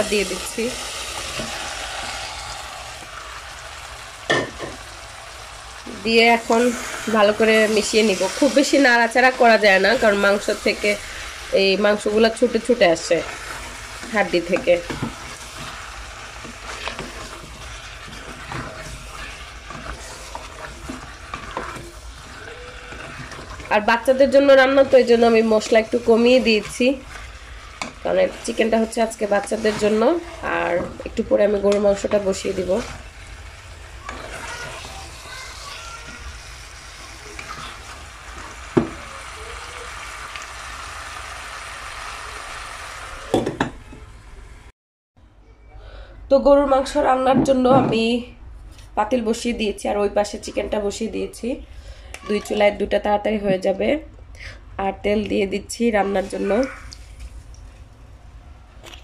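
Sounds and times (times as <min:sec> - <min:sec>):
frying hiss: 0:00.0 - 0:44.7, 0:54.4 - 0:58.0
spatula scraping saucepan: 0:05.9 - 0:33.3, 0:34.0 - 0:36.3, 0:36.9 - 0:39.4.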